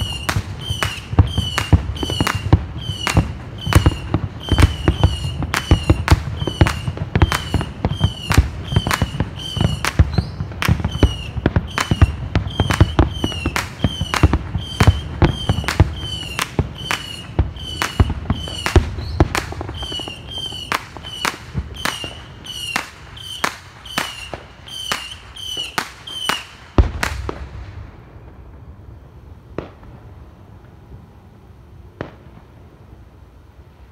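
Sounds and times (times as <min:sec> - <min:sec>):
short high whistle: 0:00.0 - 0:26.5
fireworks bangs: 0:00.0 - 0:30.8, 0:31.9 - 0:32.6.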